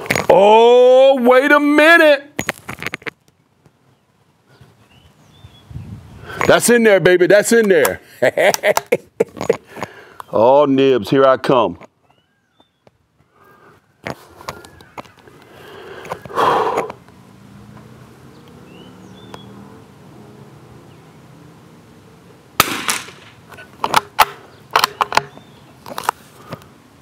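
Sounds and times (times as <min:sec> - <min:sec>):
rifle shot: 0:22.6 - 0:23.4
handling rustle: 0:24.8 - 0:26.7.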